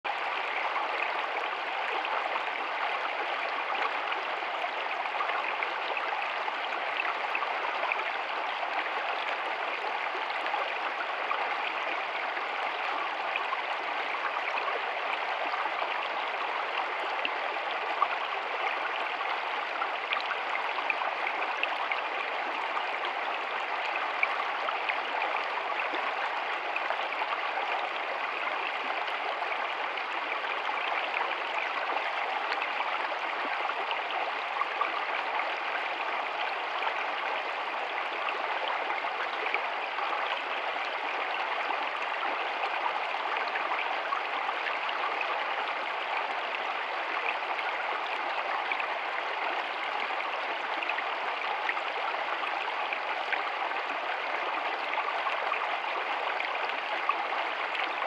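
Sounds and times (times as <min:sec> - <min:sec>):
stream rushing over rocks: 0:00.1 - 0:58.0.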